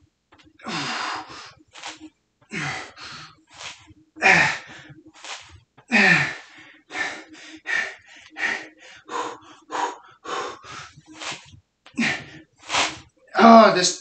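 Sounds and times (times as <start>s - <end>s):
man gasping breaths: 2.5s - 4.9s, 5.9s - 11.4s, 12.0s - 13.0s.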